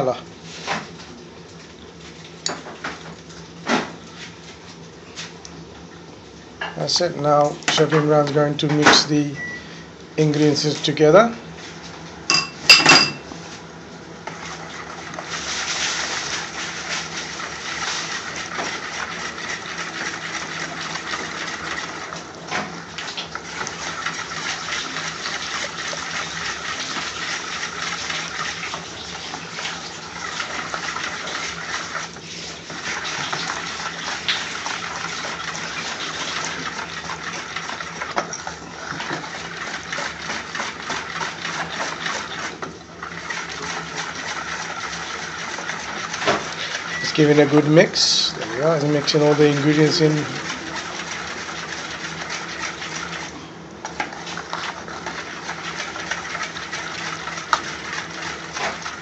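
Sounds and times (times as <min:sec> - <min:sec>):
sauce being mixed in a bowl: 0:10.2 - 0:59.0.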